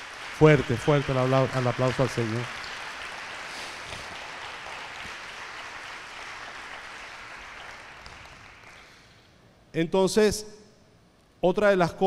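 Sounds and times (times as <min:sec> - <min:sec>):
congregation applauding: 0:00.0 - 0:09.2.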